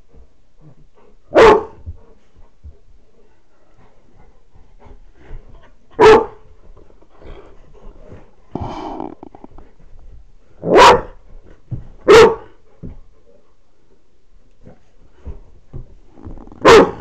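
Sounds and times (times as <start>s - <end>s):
dog barking: 1.3s - 1.8s, 6.0s - 6.4s, 10.6s - 11.2s, 12.0s - 12.5s, 16.6s - 17.0s.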